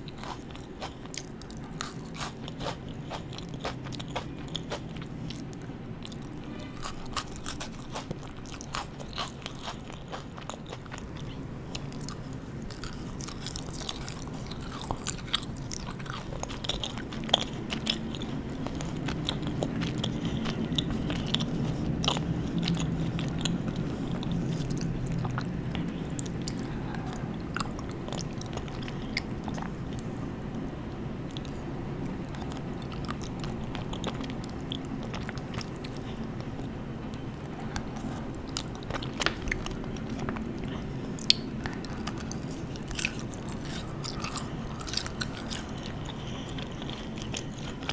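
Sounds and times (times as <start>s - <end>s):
chewing and crunching candy: 0.0s - 47.9s.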